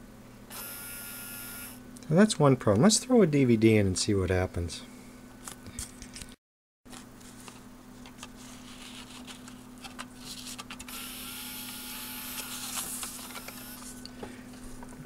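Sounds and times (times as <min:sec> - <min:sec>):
low electrical hum: 0:00.0 - 0:15.0
disc drive motor whirring: 0:00.5 - 0:01.8, 0:10.8 - 0:14.0
disc handling clicks and rustles: 0:06.9 - 0:11.0, 0:12.3 - 0:13.8.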